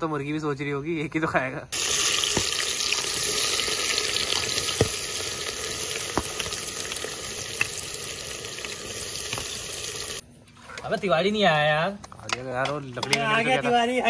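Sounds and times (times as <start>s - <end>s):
chicken sizzling in hot oil: 1.7s - 10.2s
oil popping: 1.8s - 10.2s.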